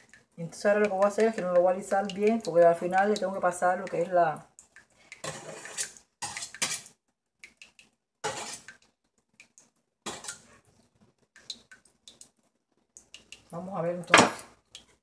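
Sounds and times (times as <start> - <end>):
metal spatula scraping a bowl: 5.2 - 6.9, 8.2 - 8.8, 10.1 - 10.5.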